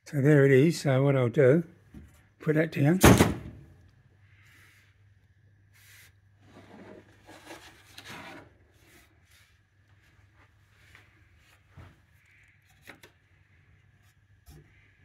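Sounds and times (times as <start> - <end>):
rubbing and scuffing handling noises: 5.7 - 12.1.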